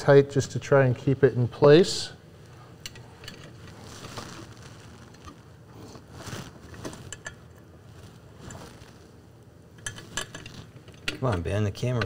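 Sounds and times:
small metal clicks and scrapes: 9.8s - 12.0s.

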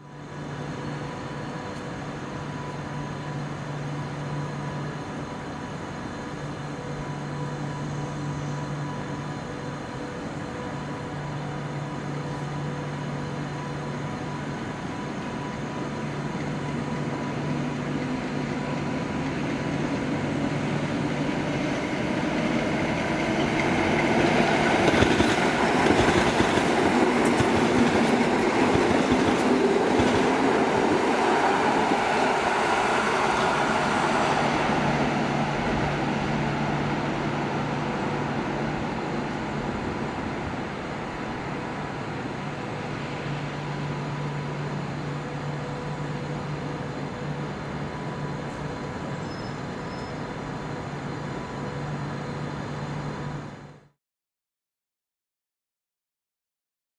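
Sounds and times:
electric train hum: 0.0s - 54.0s
train motor whine rising: 11.9s - 49.2s.

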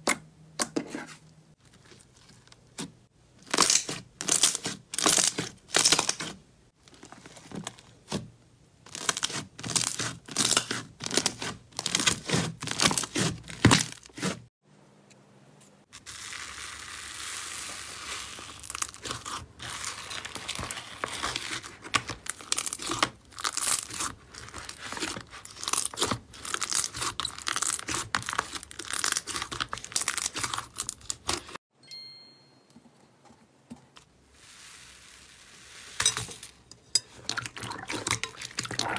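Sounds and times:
slime popping and crackling: 16.0s - 31.4s.

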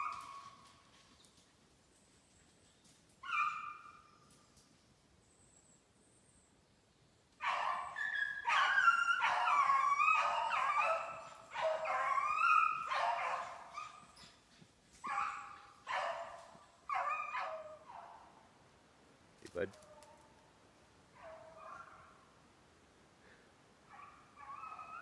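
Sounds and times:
dogs baying: 7.4s - 18.2s.

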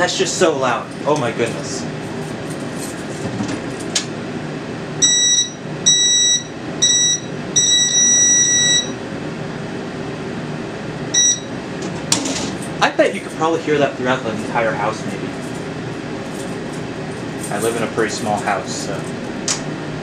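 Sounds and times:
steady fan hum: 0.0s - 20.0s
piezo buzzer beeping: 5.0s - 9.0s, 11.1s - 11.6s.

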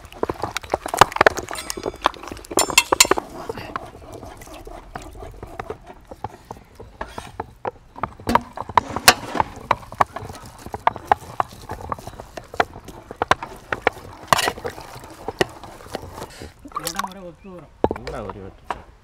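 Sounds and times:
potatoes dropping onto metal plates: 1.1s - 3.2s.

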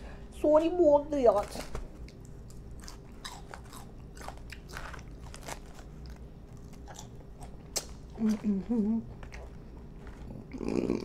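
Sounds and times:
chewing crisp lettuce: 1.3s - 11.0s.

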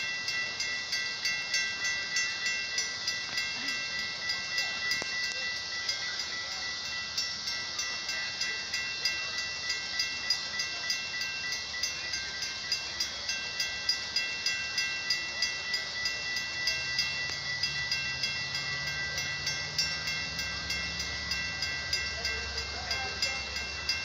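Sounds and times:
railroad crossing bell ringing: 0.0s - 24.0s
train rumble: 0.0s - 24.0s.

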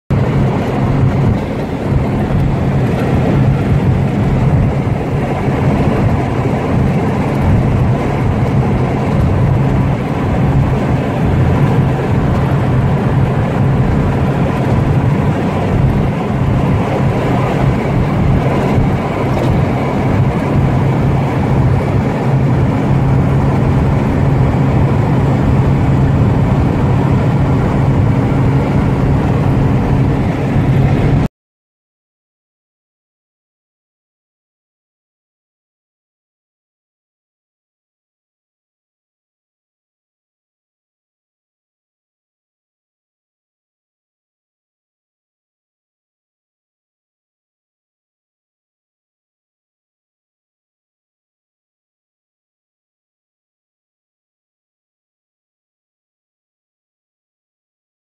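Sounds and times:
car engine drone: 0.1s - 31.3s
road and wind noise: 0.1s - 31.3s.

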